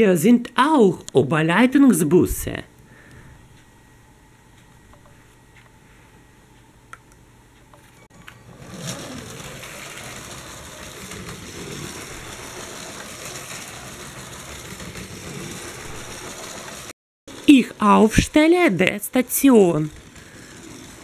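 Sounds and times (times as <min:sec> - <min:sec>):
toy train motor whirring: 0:08.3 - 0:21.0.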